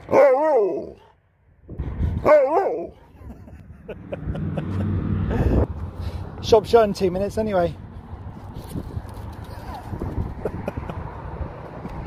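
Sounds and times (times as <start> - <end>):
dog howling: 0.1 - 1.0.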